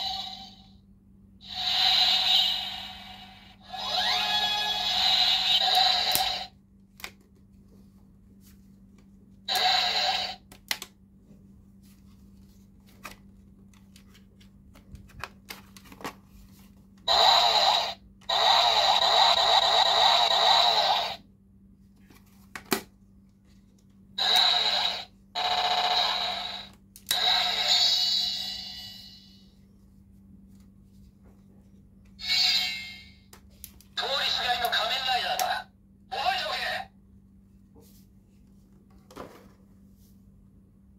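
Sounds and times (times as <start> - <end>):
toy electronic sound effects: 1.4 - 6.5, 9.5 - 10.4, 17.1 - 21.2, 24.2 - 29.2.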